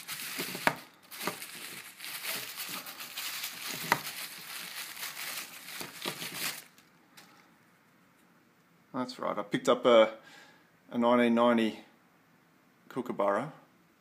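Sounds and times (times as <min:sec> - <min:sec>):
tissue paper crumpling: 0:00.0 - 0:06.8.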